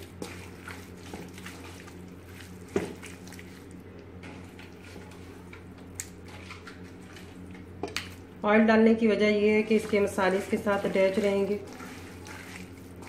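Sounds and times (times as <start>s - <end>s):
hands squelching chicken in marinade: 0.0s - 8.3s, 9.4s - 13.0s.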